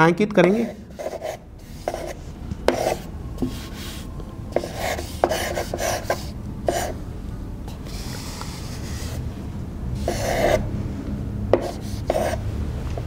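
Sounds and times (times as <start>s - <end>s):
chalk scraping on blackboard: 0.4s - 7.0s, 7.9s - 9.2s, 10.0s - 10.6s, 11.6s - 12.4s.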